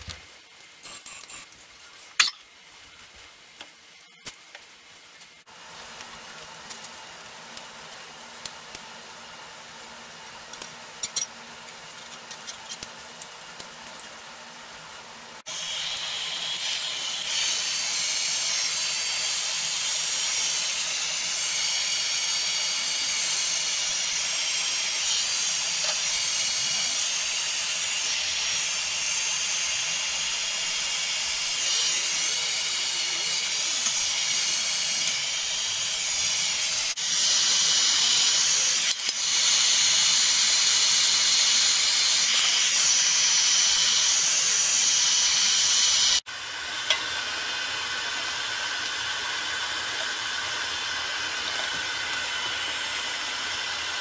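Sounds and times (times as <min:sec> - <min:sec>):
heat gun blowing air: 0:15.4 - 0:54.0.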